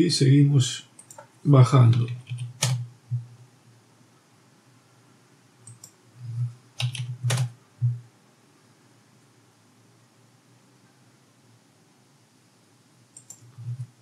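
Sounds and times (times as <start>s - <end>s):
keyboard keystrokes: 1.9s - 3.3s, 6.8s - 8.0s.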